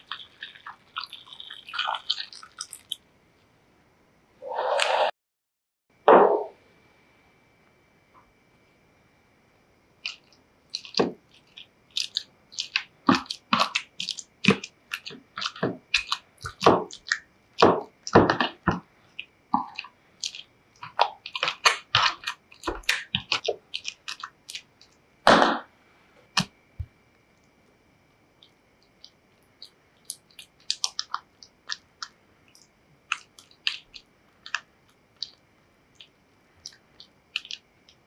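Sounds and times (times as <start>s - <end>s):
potatoes squishing under masher: 0.0s - 3.0s, 10.0s - 25.0s, 28.8s - 38.0s.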